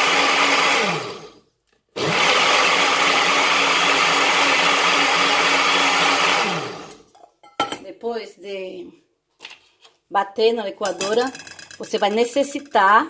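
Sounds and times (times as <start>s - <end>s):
blender running: 0.0s - 1.4s, 2.0s - 7.0s.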